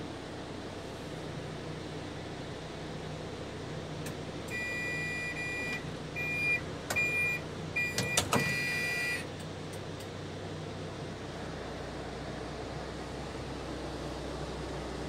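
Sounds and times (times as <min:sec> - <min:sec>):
two-note warning beep: 0:04.5 - 0:09.2
door shutting clunk: 0:08.0 - 0:08.6.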